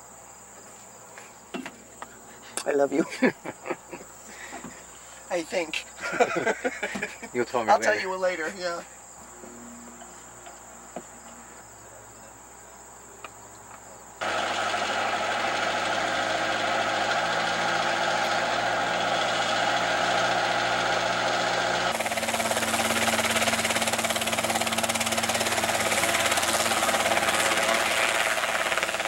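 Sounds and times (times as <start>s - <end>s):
crickets chirping: 0.0s - 14.3s, 17.4s - 29.0s
helicopter engine and rotor: 14.2s - 29.0s.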